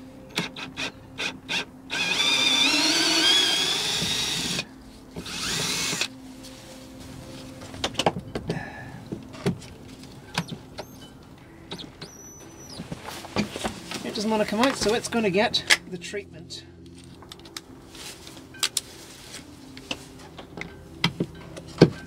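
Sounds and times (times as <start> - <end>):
cordless drill whining: 0.3 - 6.1.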